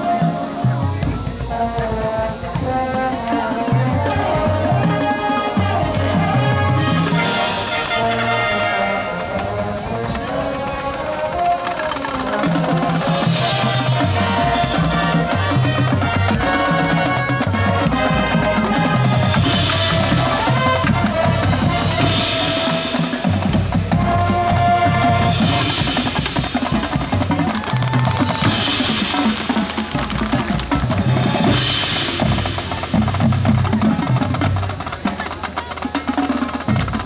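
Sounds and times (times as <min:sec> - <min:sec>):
brass chords: 0:00.0 - 0:27.5
marching drums: 0:00.0 - 0:37.0
cymbal crashes: 0:31.0 - 0:33.5.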